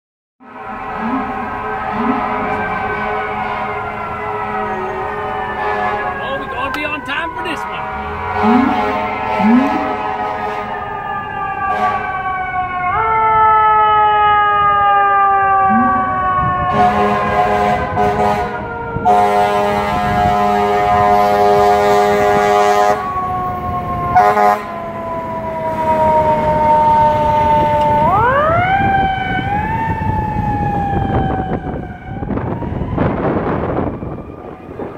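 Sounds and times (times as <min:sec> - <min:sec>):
horn blasts: 0:00.4 - 0:10.9, 0:11.7 - 0:12.1, 0:16.7 - 0:23.1, 0:24.2 - 0:24.8.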